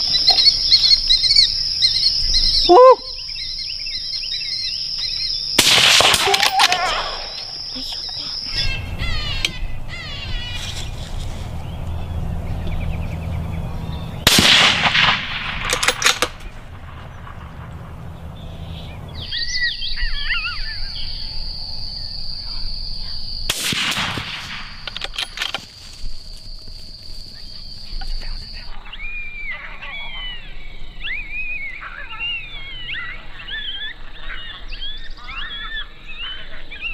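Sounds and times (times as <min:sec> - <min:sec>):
high wavering calls: 0:00.0 - 0:05.6, 0:06.2 - 0:14.2, 0:18.0 - 0:23.4
rifle shots with echo: 0:05.6 - 0:07.2, 0:14.2 - 0:18.4, 0:23.5 - 0:25.0.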